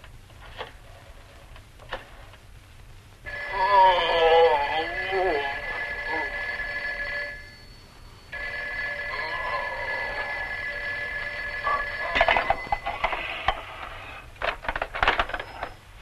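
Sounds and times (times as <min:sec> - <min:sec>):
telephone bell ringing: 0:03.3 - 0:13.3.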